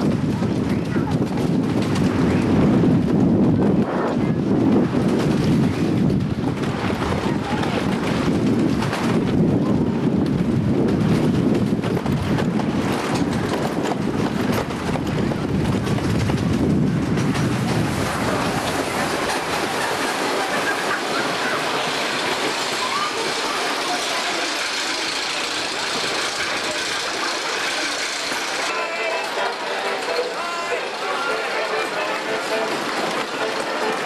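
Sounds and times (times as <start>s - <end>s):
wind on microphone: 0.0s - 20.7s
roller coaster train rumbling: 0.0s - 34.0s.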